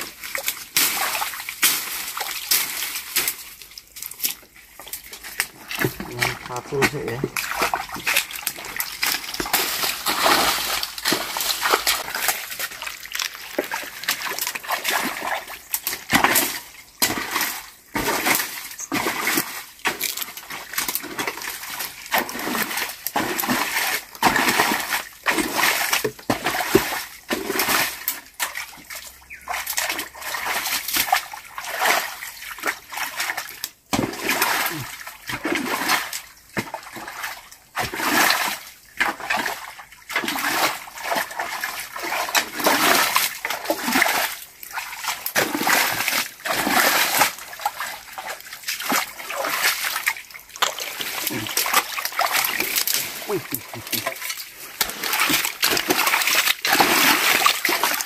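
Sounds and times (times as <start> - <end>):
water splashing and sloshing: 0.0 - 58.0.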